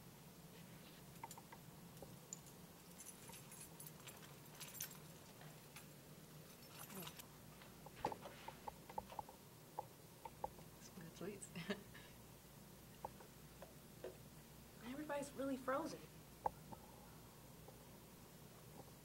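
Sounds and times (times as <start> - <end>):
faint jingling rustle: 2.1 - 7.2.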